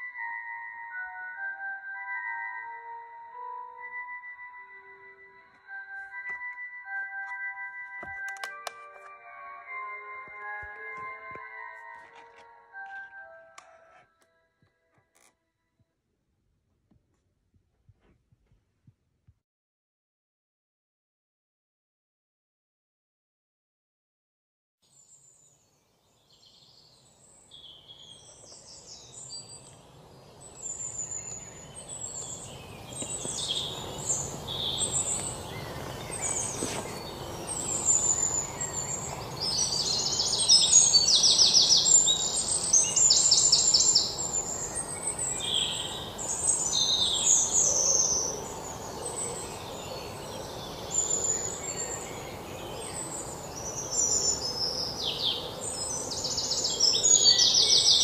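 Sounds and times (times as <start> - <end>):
steady outdoor hiss: 25.0 - 58.0
small birds chirping and trilling: 25.2 - 58.0.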